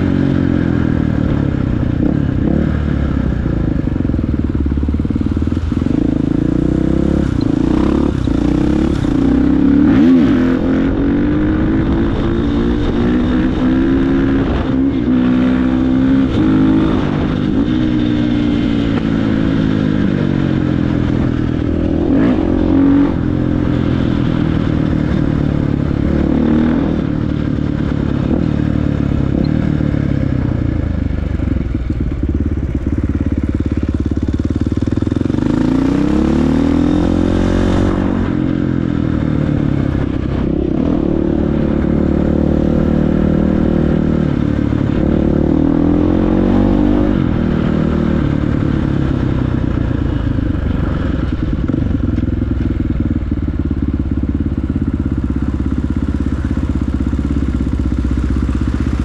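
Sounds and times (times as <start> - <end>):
dirt bike engine revving: 5.5 - 29.8, 35.2 - 49.2.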